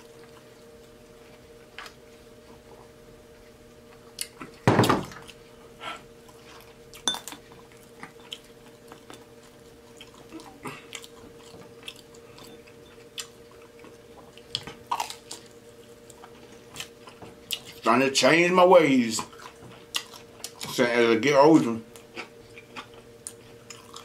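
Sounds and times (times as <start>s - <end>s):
faint steady hum: 0.0s - 24.0s
wet mouth clicks and chewing: 22.0s - 24.0s.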